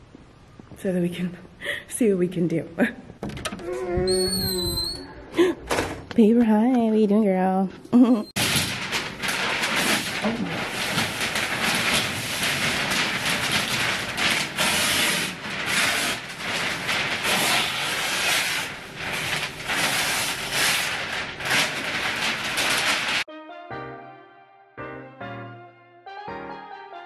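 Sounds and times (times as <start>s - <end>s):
paper rustling and crinkling: 8.4s - 23.3s.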